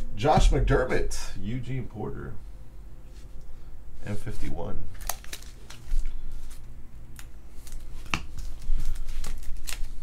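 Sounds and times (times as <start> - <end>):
card packs rustling and clicking: 5.0 - 10.0.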